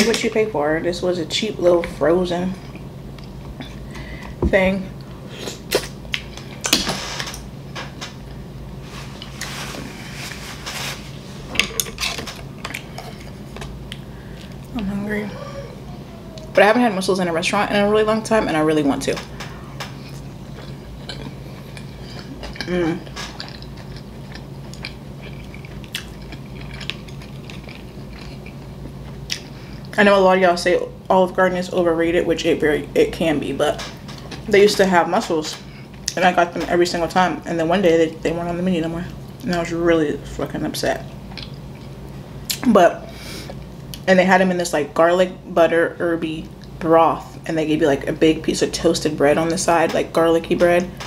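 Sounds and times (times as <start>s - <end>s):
low steady hum: 0.0s - 51.0s
paper napkin rustling: 8.8s - 11.5s
chewing food: 19.9s - 30.0s, 41.3s - 42.6s.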